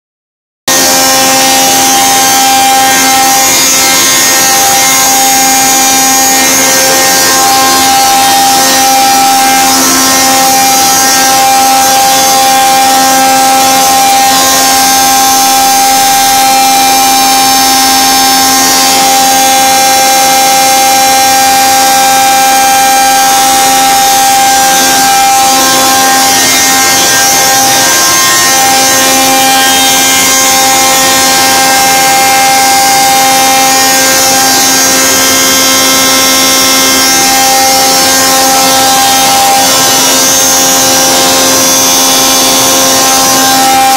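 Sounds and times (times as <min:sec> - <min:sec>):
mill mechanical whine: 0:00.7 - 0:43.9.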